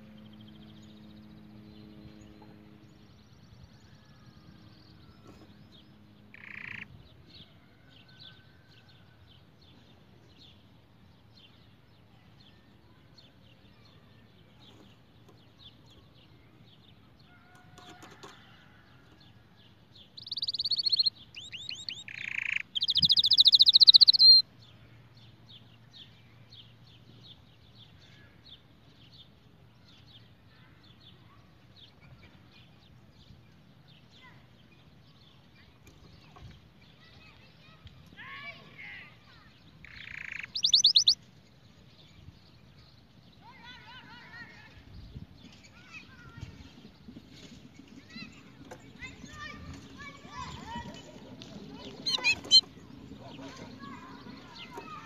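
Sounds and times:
canary singing: 6.3 - 7.0, 20.2 - 24.4, 39.7 - 41.2, 51.8 - 55.0.

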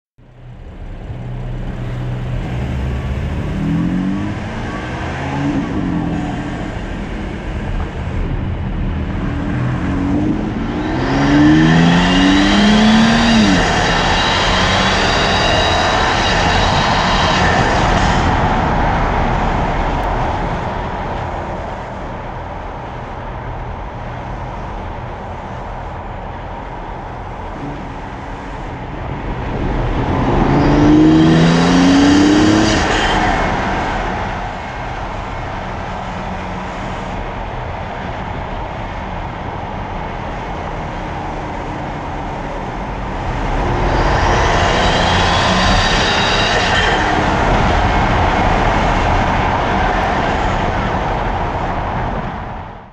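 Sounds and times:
car engine revving: 0.2 - 23.1, 26.8 - 52.9
loud intake rush with whistle: 10.6 - 19.0, 43.3 - 50.7.

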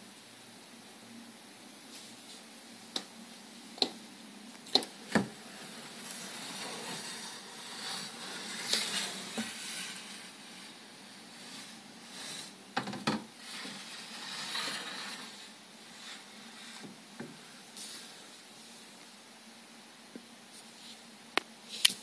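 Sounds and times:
faint steady hiss: 0.0 - 22.0
rustling: 4.6 - 19.1.

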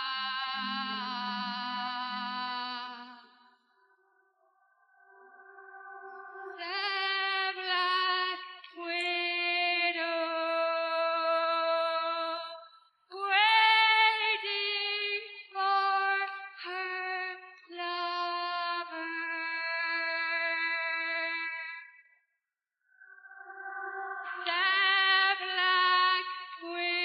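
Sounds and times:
woman singing: 0.0 - 3.4, 6.4 - 21.9, 24.3 - 27.0.

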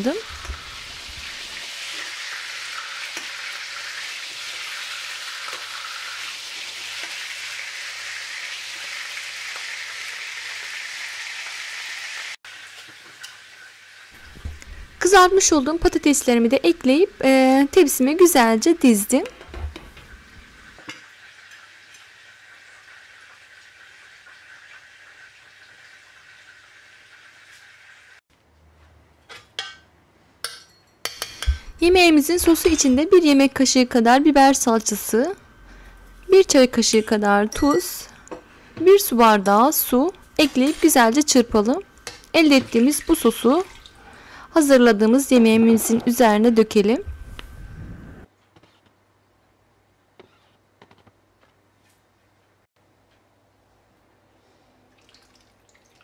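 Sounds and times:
meatballs sizzling in oil: 0.0 - 19.2, 19.9 - 28.2, 38.8 - 43.6.

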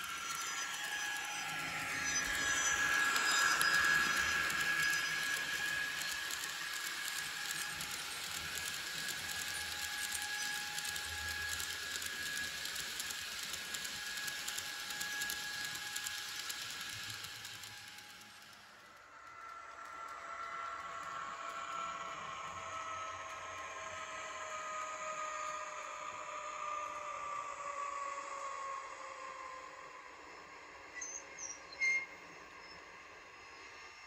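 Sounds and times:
small wheels clattering on track: 0.0 - 21.3
model locomotive electric whine: 0.0 - 34.0.

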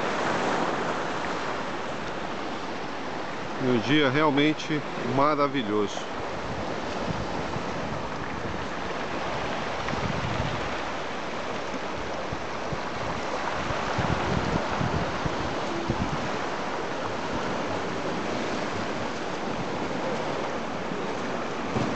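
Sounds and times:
waves washing over rocks: 0.0 - 21.9
wind buffeting microphone: 6.1 - 21.9.

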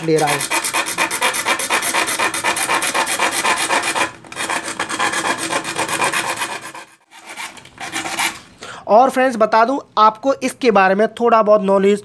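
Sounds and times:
hacksaw sawing circuit board: 0.0 - 8.4.

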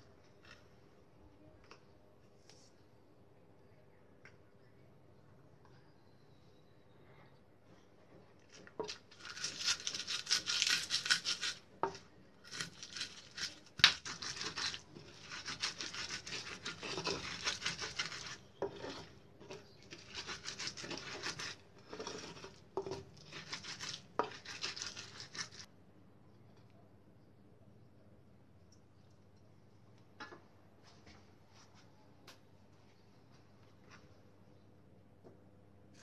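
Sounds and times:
pestle grinding in mortar: 8.9 - 25.7.

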